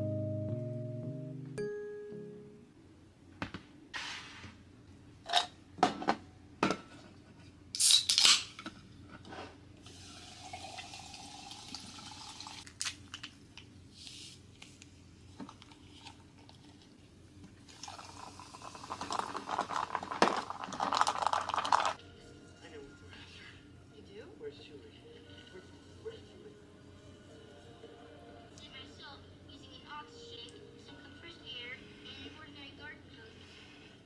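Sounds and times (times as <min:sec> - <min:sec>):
can opening hiss: 0:07.8 - 0:08.5.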